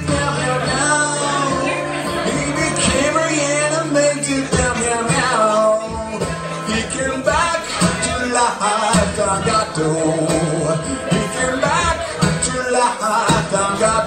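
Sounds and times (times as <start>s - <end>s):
acoustic guitar: 0.0s - 14.0s
man singing: 0.0s - 14.0s.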